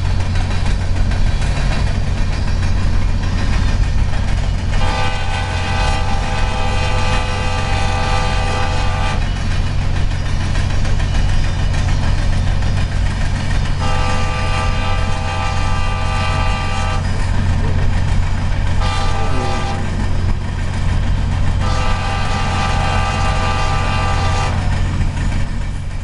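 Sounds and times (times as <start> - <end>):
passing train rumble: 0.0 - 26.0
train horn chord: 4.8 - 9.3, 13.8 - 17.2, 18.8 - 20.2, 21.5 - 24.7.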